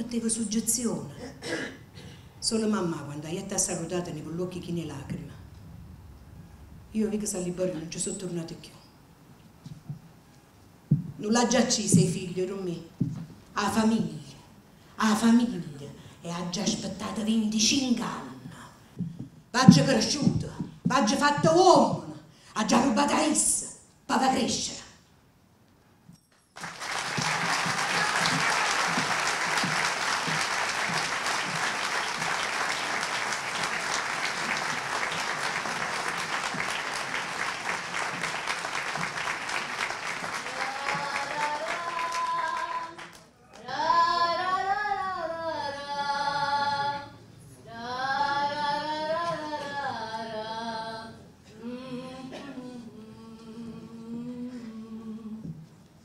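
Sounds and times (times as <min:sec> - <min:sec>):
audience applauding: 0:26.6 - 0:43.3.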